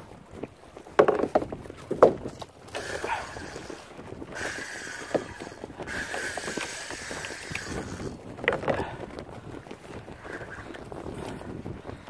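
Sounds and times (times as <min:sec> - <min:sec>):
wind and water: 0:00.0 - 0:12.0
fishing reel whirring: 0:02.7 - 0:08.7.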